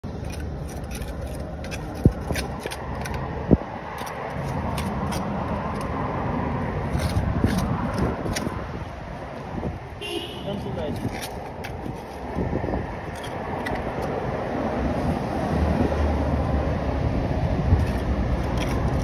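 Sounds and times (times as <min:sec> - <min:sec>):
trowel scraping wet mortar: 0:00.1 - 0:03.2, 0:03.9 - 0:06.0, 0:06.8 - 0:08.6, 0:10.9 - 0:12.4, 0:17.7 - 0:19.0.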